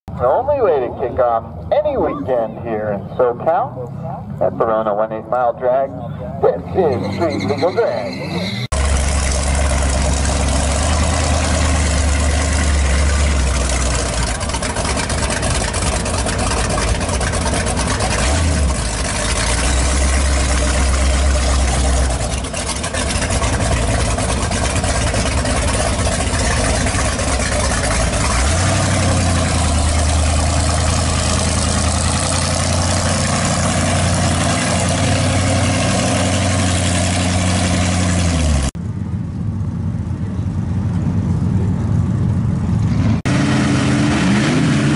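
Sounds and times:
pickup engine idling: 0:08.7 - 0:42.8.

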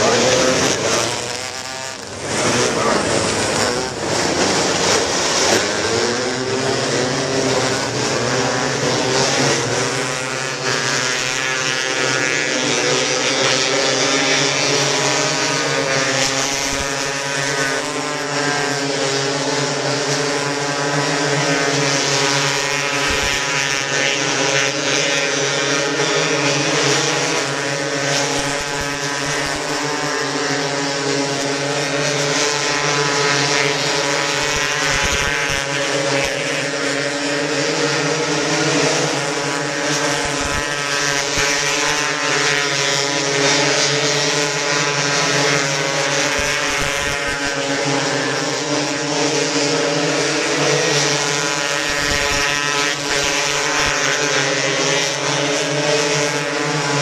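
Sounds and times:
racing car engines droning: 0:00.0 - 0:57.0.

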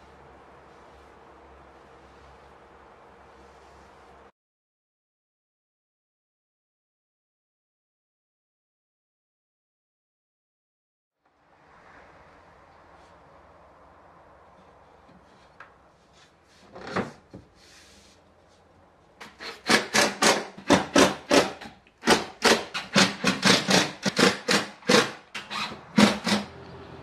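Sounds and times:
rhythmic scraping on wood: 0:19.2 - 0:25.3.

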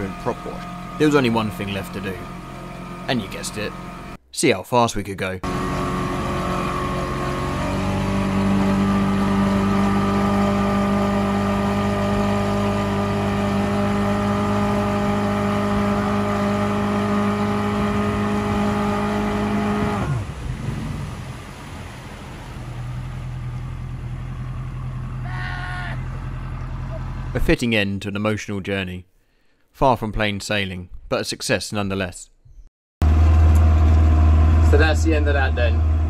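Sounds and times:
boat wake rushing: 0:00.0 - 0:04.2, 0:05.4 - 0:27.4
outboard motor running: 0:00.0 - 0:04.2, 0:05.4 - 0:27.4.

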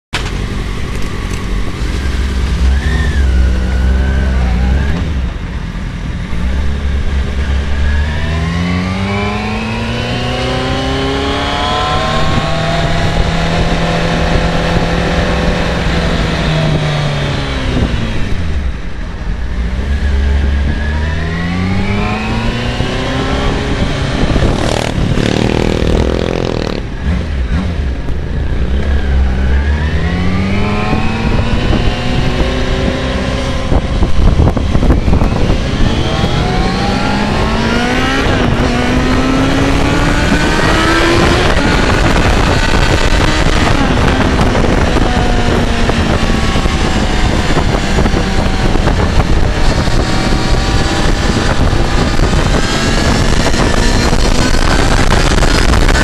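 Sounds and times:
motorcycle engine revving: 0:00.2 - 0:56.0
wind rumble on microphone: 0:00.2 - 0:56.0
clatter and buzz: 0:19.5 - 0:56.0.

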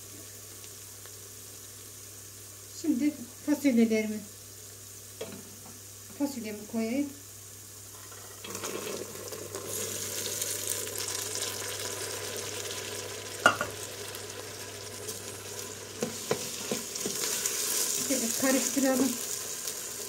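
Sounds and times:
beans sizzling in hot oil: 0:00.0 - 0:20.0
knocks on pot: 0:13.4 - 0:13.7.

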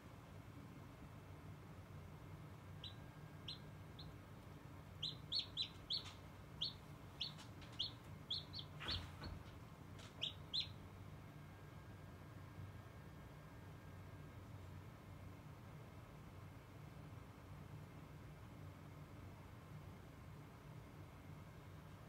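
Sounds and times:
incubator hum: 0:00.0 - 0:22.0
chick peeping: 0:02.8 - 0:10.8.

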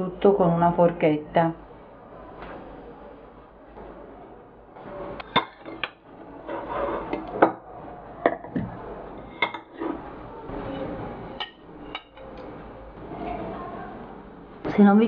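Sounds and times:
metal spoon clinking on dishes: 0:11.4 - 0:12.3.

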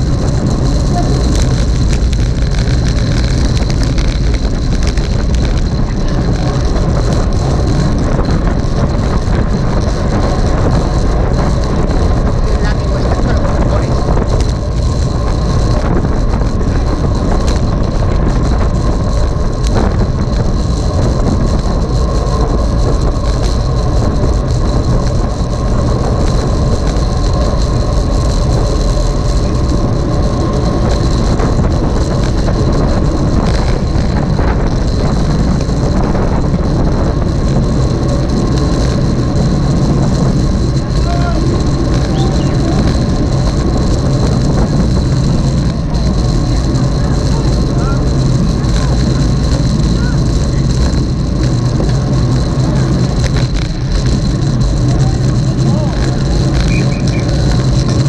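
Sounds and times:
road noise: 0:00.0 - 0:58.0
wind rushing on microphone: 0:00.0 - 0:58.0.

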